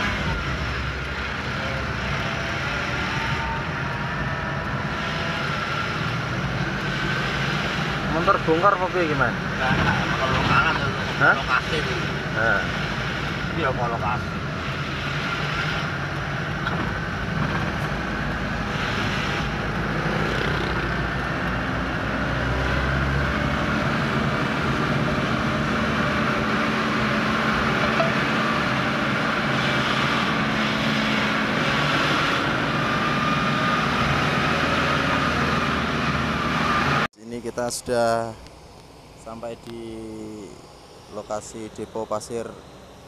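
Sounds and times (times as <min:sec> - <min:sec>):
diesel truck engine running: 0:00.0 - 0:43.0
road noise: 0:00.0 - 0:43.0.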